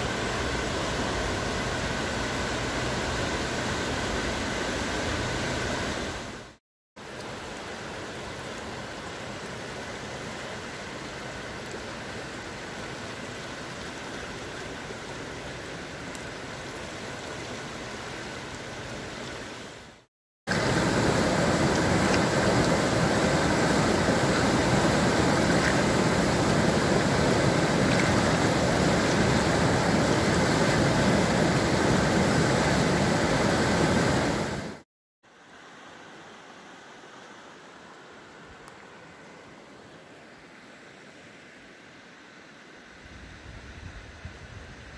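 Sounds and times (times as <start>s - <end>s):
churning white-water rapids: 0.0s - 34.8s
river water rushing: 0.0s - 43.2s.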